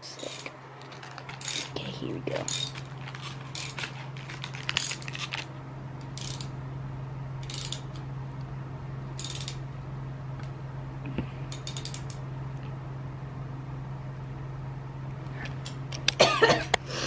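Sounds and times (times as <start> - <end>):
steady low hum: 0.0 - 17.0
ratchet wrench clicking: 1.4 - 1.7, 6.2 - 6.5, 7.4 - 8.0, 9.2 - 9.6, 11.5 - 12.2.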